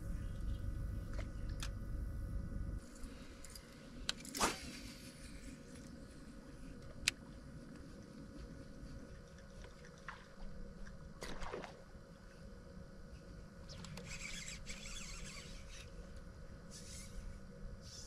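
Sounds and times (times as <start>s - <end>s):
low hum: 0.0s - 18.0s
water lapping at hull: 9.0s - 12.0s.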